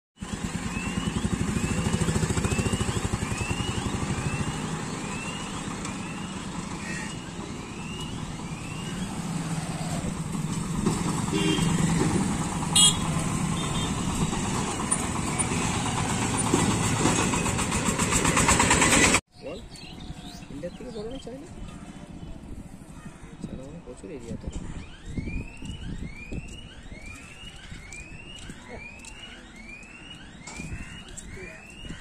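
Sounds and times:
diesel cart engine thudding: 0:00.2 - 0:07.2, 0:10.0 - 0:19.2
motorcycle engine pulsing: 0:00.2 - 0:09.4
passing vehicle engines: 0:00.2 - 0:19.2.

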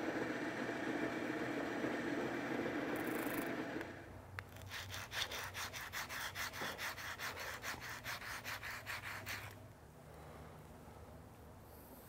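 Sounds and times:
faint low room hum: 0:00.0 - 0:12.0
sandpaper rasping: 0:04.5 - 0:09.6.

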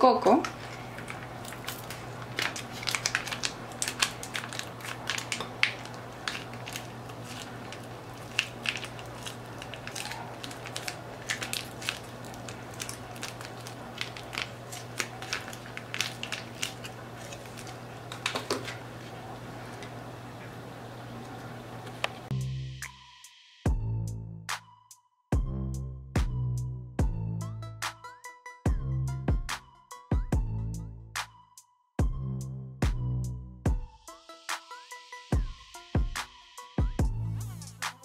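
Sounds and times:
plastic sachet crinkling: 0:00.4 - 0:20.0.

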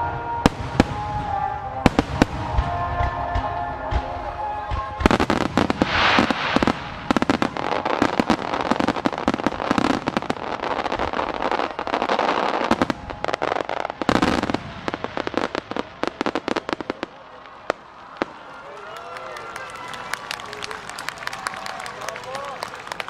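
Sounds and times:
fireworks bursting with sharp bangs: 0:00.0 - 0:18.6.

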